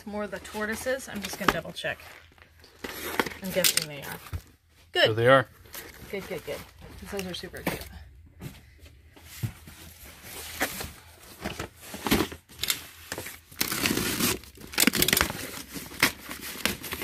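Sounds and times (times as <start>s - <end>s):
cardboard tearing and rustling: 10.2s - 17.0s.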